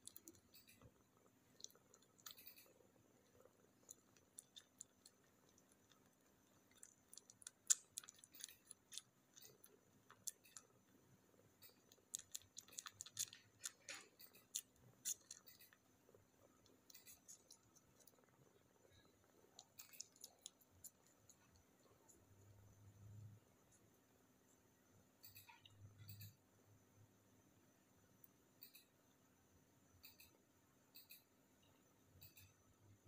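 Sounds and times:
kitten suckling wet clicks: 1.6s - 10.7s, 11.6s - 15.8s, 16.6s - 18.3s, 19.5s - 21.6s.

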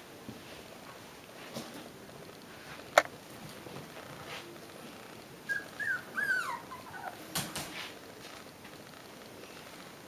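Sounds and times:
puppy whining: 5.4s - 7.3s.

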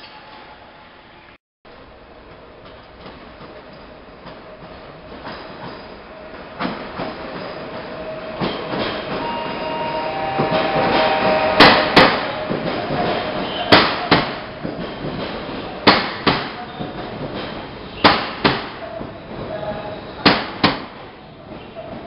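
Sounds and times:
train coaches rolling past: 0.0s - 18.0s, 18.7s - 22.0s
wheels clacking over rail joints: 11.7s - 19.5s.

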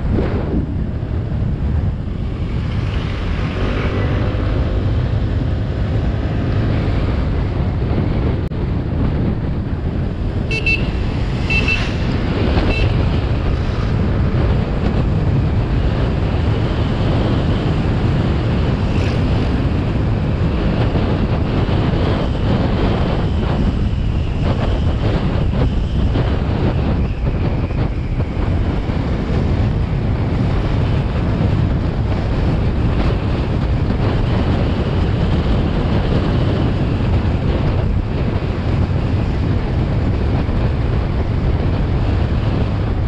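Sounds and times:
scooter engine and road noise: 0.0s - 43.0s
wind buffeting the microphone: 0.0s - 43.0s
vehicle horn toots: 10.5s - 12.0s, 12.6s - 13.1s.

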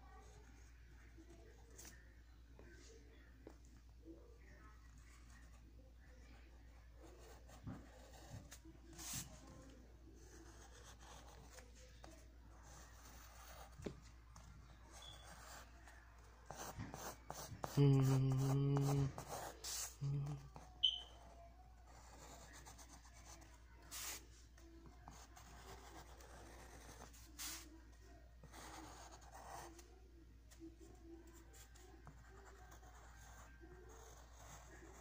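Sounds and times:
pencil scratching on paper: 6.4s - 27.8s, 28.4s - 29.9s, 30.8s - 35.0s.

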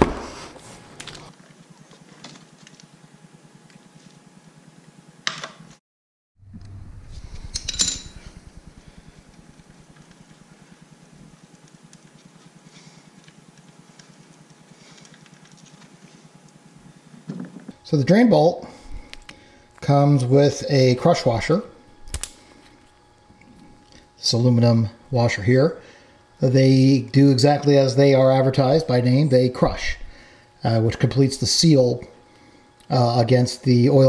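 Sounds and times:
faint steady hum: 0.0s - 5.3s, 6.4s - 34.0s
metallic clink: 7.5s - 8.4s.

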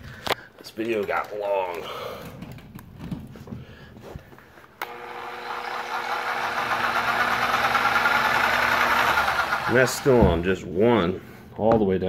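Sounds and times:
handling knocks and clicks: 0.0s - 3.6s
rotary hammer running: 4.8s - 10.6s.

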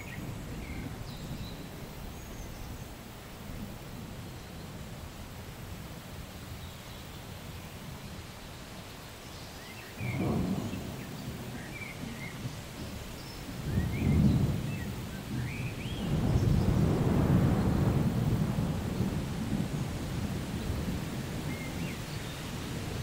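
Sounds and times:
thunder rumbling: 10.0s - 23.0s.

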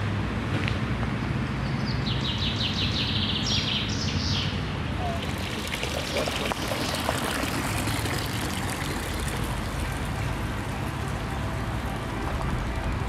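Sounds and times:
fountain water splashing into basin: 5.0s - 13.0s.

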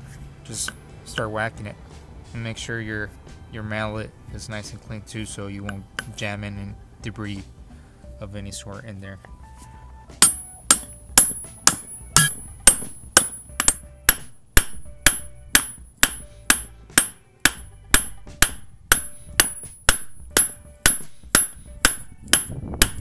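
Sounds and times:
mallet striking metal: 10.2s - 23.0s.

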